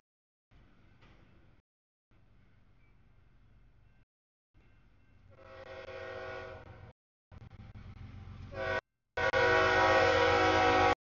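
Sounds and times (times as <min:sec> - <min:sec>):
locomotive air horn blasts: 0:05.3 - 0:06.9, 0:08.5 - 0:11.0.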